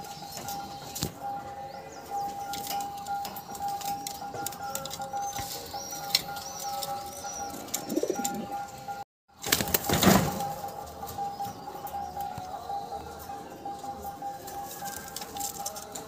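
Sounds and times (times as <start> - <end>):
pigeons cooing: 0.0 - 16.0
wings flapping: 9.4 - 10.5.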